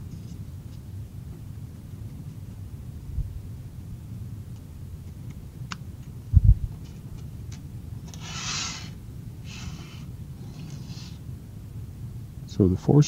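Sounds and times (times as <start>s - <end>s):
screws sliding across paper: 8.1s - 8.9s.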